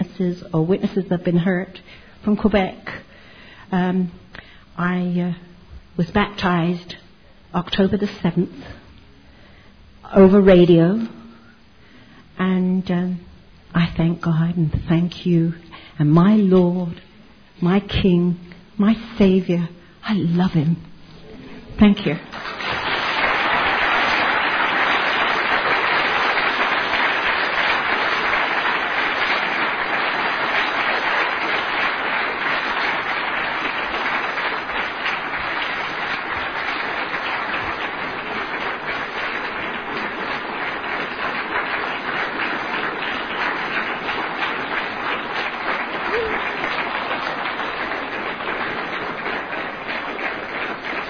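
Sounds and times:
audience applauding: 22.3 - 51.0.

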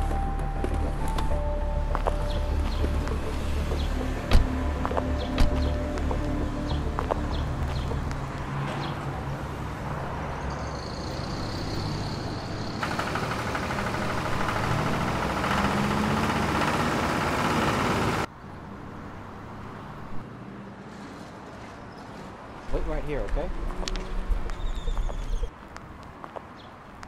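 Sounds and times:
outdoor background: 0.0 - 27.0
heavy machinery hissing: 12.8 - 18.3
low engine rumble: 12.8 - 18.3.

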